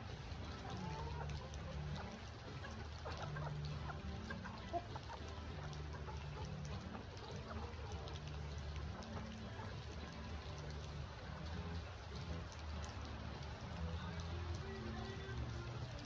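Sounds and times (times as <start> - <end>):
chickens clucking: 0.4 - 13.0.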